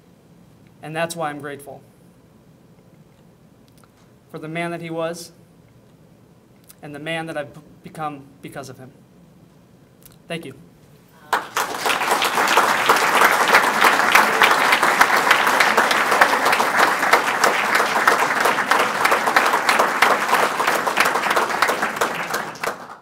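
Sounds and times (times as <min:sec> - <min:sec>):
audience applauding: 0:11.2 - 0:23.0.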